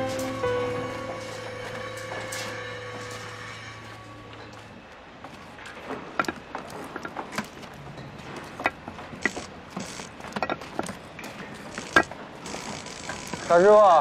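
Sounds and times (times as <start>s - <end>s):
trowel clinking against bricks: 10.2s - 12.1s.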